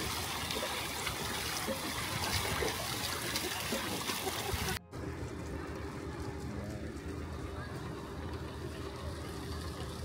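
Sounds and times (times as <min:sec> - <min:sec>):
water trickling: 0:00.0 - 0:04.8.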